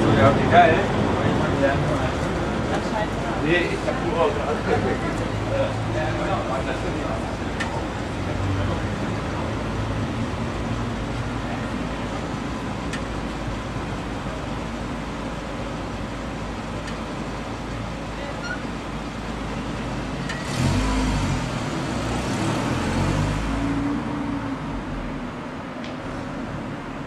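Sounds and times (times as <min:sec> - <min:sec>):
engines idling: 0:00.0 - 0:27.0
vehicles pulling away: 0:00.0 - 0:27.0.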